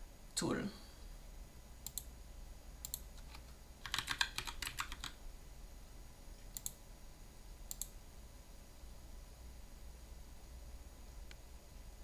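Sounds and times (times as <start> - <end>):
computer keyboard typing: 2.8 - 5.2.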